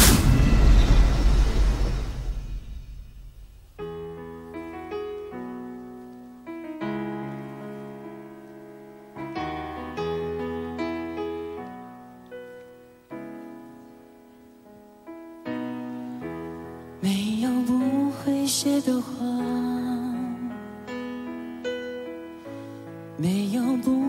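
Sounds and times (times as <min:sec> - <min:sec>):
slow piano chords: 0:00.0 - 0:24.0
man singing: 0:17.0 - 0:20.6, 0:23.2 - 0:24.0.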